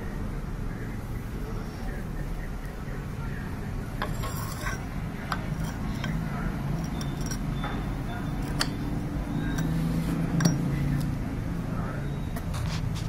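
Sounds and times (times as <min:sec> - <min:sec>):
metal parts and tools clinking: 0:04.0 - 0:09.8, 0:10.4 - 0:11.1.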